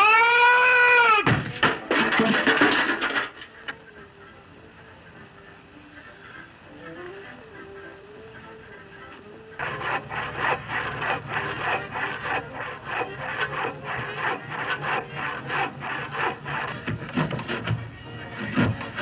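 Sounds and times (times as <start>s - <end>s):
steady low hum: 3.8s - 19.0s
wood being sanded by hand: 8.5s - 19.0s.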